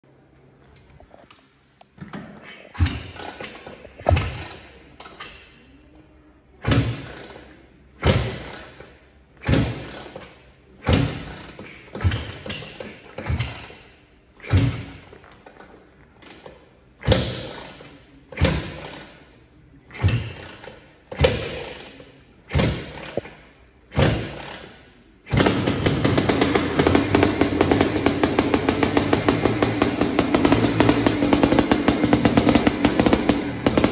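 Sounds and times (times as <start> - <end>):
engine turning over: 24.0 - 33.9.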